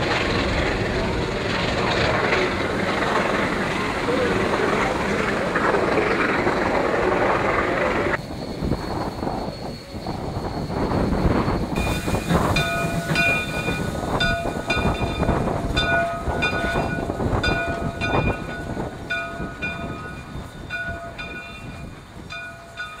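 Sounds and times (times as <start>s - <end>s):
locomotive engine rumble and hiss: 0.0s - 23.0s
steam locomotive bell ringing: 8.2s - 23.0s.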